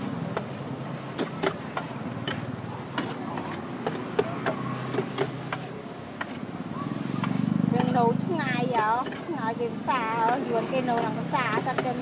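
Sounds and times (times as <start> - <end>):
metal spatula scraping a wok: 7.9 - 12.0.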